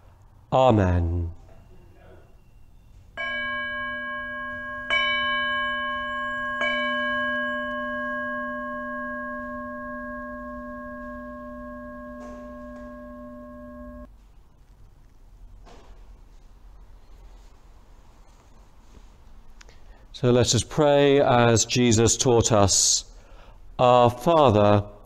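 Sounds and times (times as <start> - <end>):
altar bell ringing: 3.2 - 14.1.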